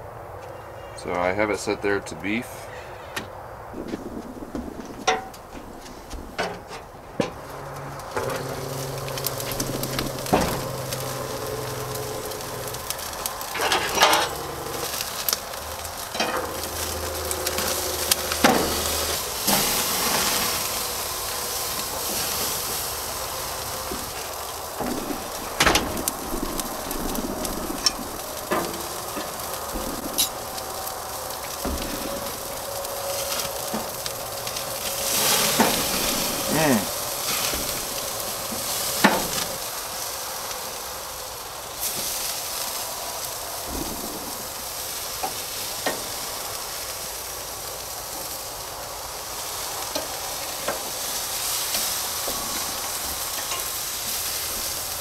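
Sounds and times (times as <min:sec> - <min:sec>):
steak sizzling on grill: 0:03.8 - 0:55.0
metal spatula scraping grate: 0:07.6 - 0:15.3.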